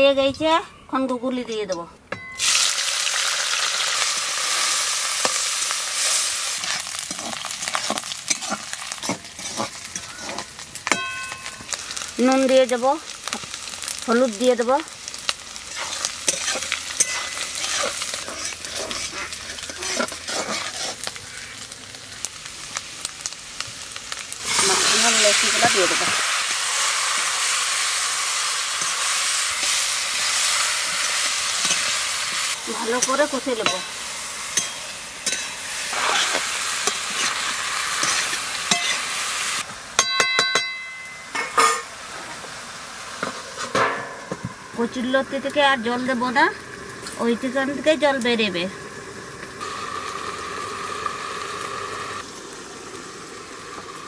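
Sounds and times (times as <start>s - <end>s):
snails sizzling in hot oil: 2.4s - 54.0s
metal spatula scraping wok: 4.4s - 12.1s, 15.6s - 21.7s, 24.4s - 39.6s.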